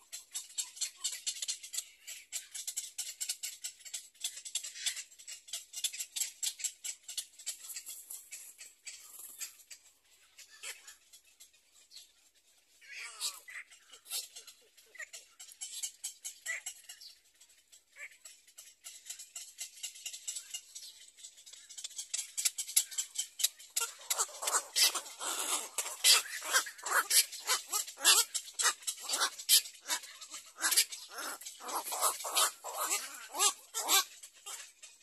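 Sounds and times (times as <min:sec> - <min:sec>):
heron chicks begging calls: 0:21.6 - 0:35.0.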